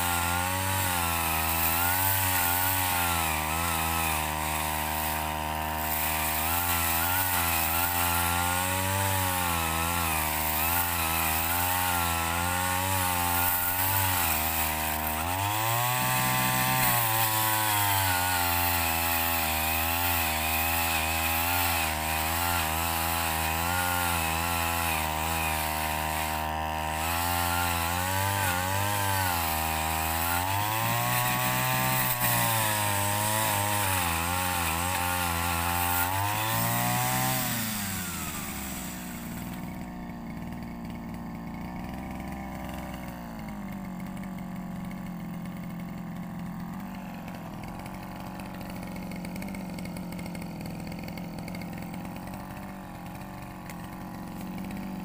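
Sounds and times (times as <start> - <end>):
brush cutter engine revving: 0.0 - 55.0
chain cutting wood: 0.0 - 55.0.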